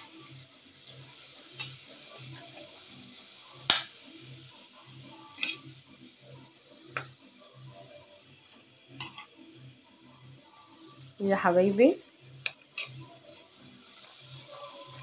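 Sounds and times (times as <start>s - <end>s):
food frying in oil: 0.0s - 15.0s
metal spoon stirring in a pot: 5.3s - 5.7s, 12.4s - 13.3s.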